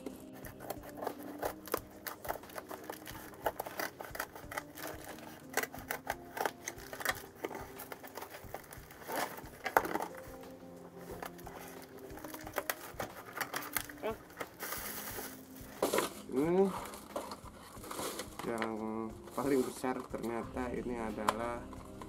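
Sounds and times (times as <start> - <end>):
packing tape crinkling: 0.0 - 20.4
soft background music: 0.0 - 22.0
scissors cutting cardboard: 0.2 - 10.4.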